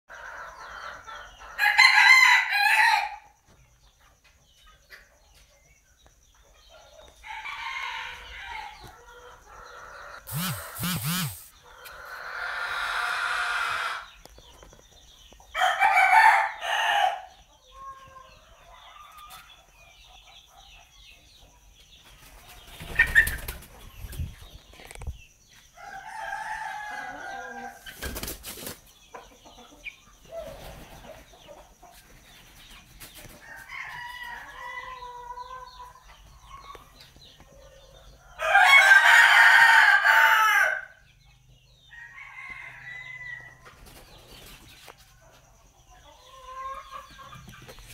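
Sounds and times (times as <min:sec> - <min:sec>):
cockerel crowing: 0:01.6 - 0:03.3, 0:07.2 - 0:14.1, 0:38.4 - 0:41.0.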